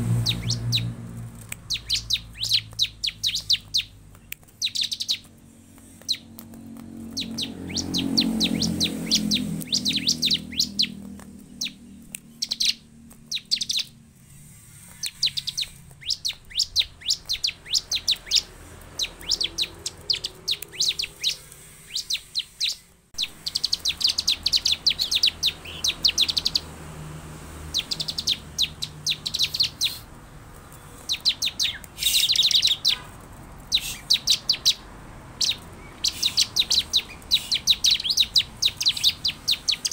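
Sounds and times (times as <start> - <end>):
low hum: 0.0 - 27.6
bird singing high dry chirps: 0.0 - 39.9.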